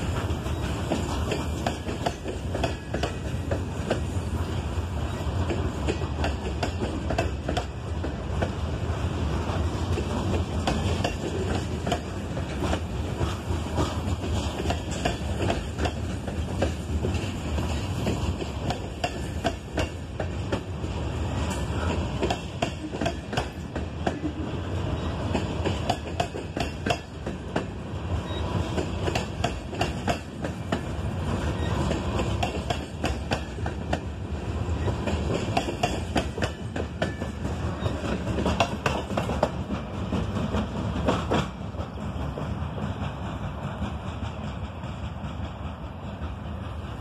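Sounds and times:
train rumble: 0.0 - 47.0
train wheels clacking over rail joints: 0.0 - 47.0.

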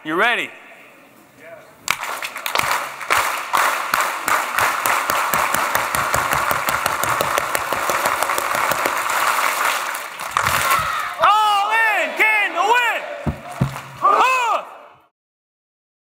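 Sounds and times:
crowd clapping: 1.9 - 11.2, 13.3 - 14.4
crowd cheering: 2.5 - 15.1.

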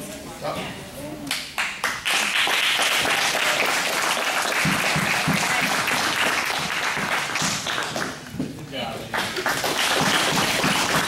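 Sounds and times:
spectators applauding: 1.6 - 8.3, 9.1 - 11.0.

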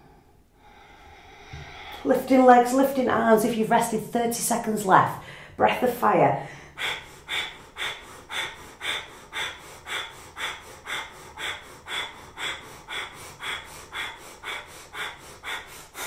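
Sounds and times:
woman breathing forcefully through nose: 0.0 - 2.1, 6.5 - 16.0.

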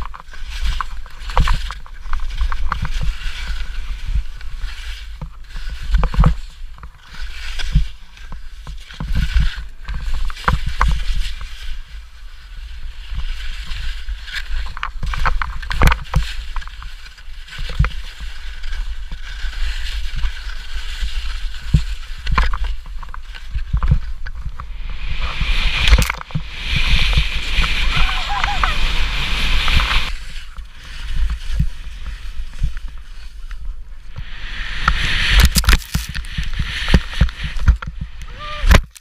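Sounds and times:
wind rumbling on microphone: 0.0 - 39.0
skis knocking on bumps: 13.6 - 39.0
skis hissing through snow: 16.2 - 38.7.

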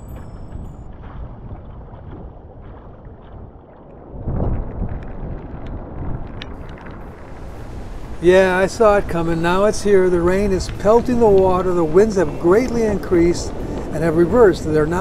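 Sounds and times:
wind buffeting microphone: 0.0 - 15.0
rain pelting the sea: 3.8 - 15.0.

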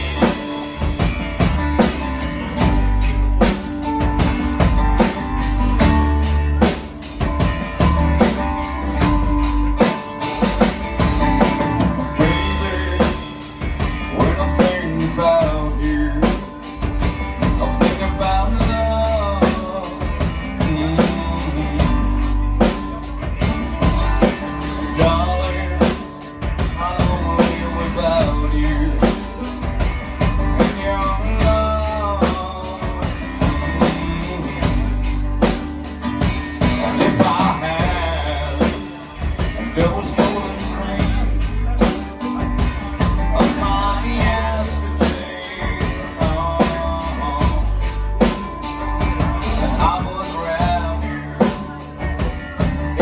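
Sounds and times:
acoustic guitar strumming: 0.0 - 53.0
drums with steady beat: 0.0 - 53.0
person singing: 7.8 - 35.4, 36.6 - 53.0.

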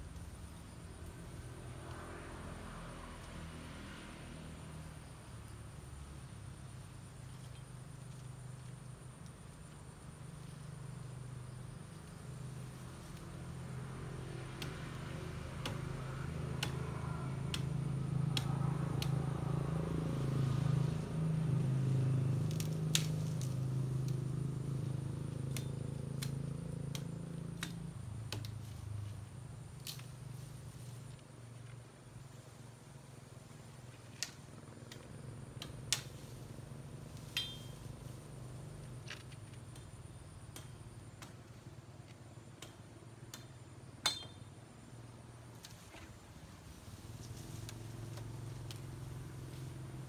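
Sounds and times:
branches snapping: 14.3 - 19.5, 22.4 - 24.4, 25.4 - 28.8, 34.0 - 38.1
short metallic ring: 37.4 - 37.8, 44.1 - 44.5.

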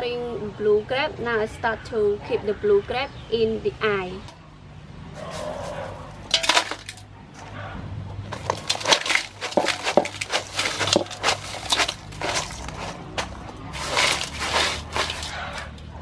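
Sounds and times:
crushed ice clattering into metal basin: 6.3 - 7.0, 8.3 - 15.8.

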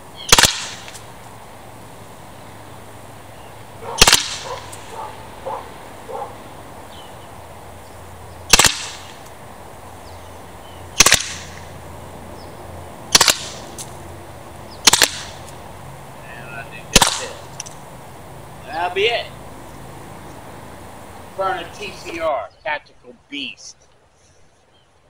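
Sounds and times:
launcher firing sharp shots: 0.3 - 1.0, 4.0 - 4.9, 8.5 - 9.2, 11.0 - 11.6, 13.1 - 13.7, 14.8 - 15.4, 16.9 - 17.4.

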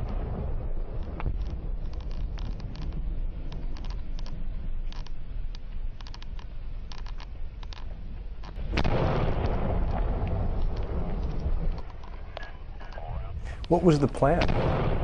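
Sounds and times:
loud rumbling explosion: 0.0 - 4.8, 8.6 - 15.0
gunshot cracks: 8.7 - 11.0, 14.2 - 15.0.

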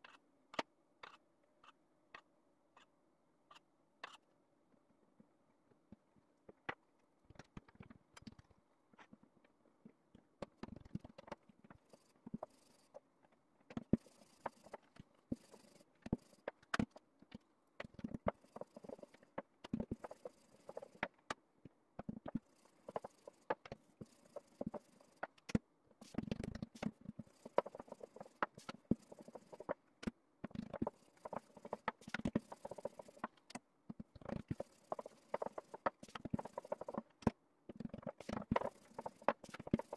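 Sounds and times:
rolling pin rolling dough: 22.0 - 39.9.

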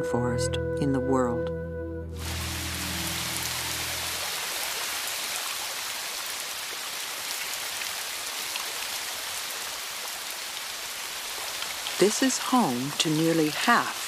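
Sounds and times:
low music chord: 0.0 - 4.4
rain on foliage and water: 2.2 - 14.0.

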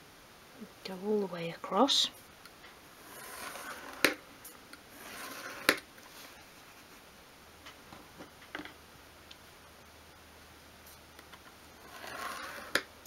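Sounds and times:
screwdriver scraping along steel rule: 3.0 - 4.2, 4.9 - 5.8, 11.8 - 12.8.

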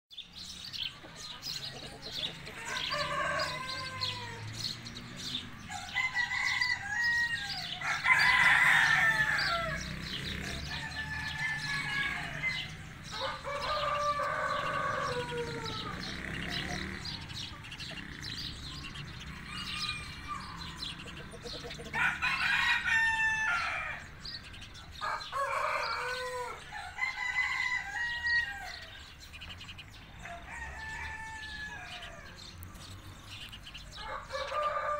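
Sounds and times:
chickens clucking and calling: 0.1 - 34.9
rooster crowing: 2.5 - 4.7, 5.7 - 9.9, 10.5 - 16.1, 21.9 - 24.1, 25.0 - 29.0, 30.2 - 32.4, 34.0 - 34.9.

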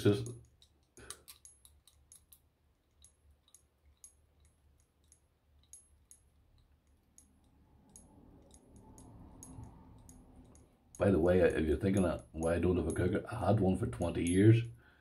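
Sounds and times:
lock picks clicking in padlock: 0.3 - 10.6.

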